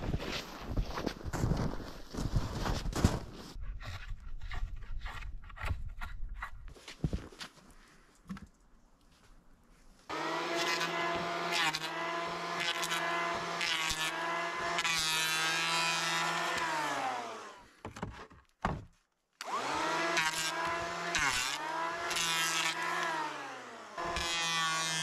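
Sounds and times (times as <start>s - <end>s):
electric planer whining: 10.1s - 17.7s, 19.4s - 25.0s.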